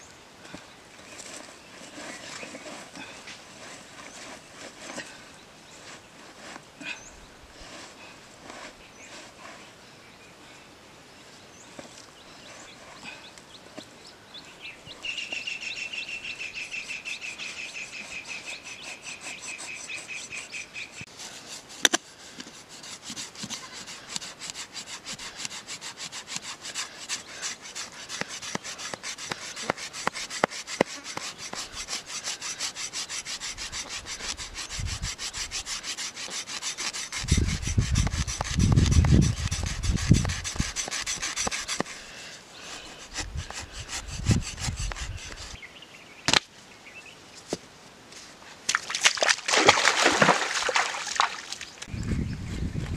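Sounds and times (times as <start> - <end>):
blade scraping fish skin: 22.9 - 42.0.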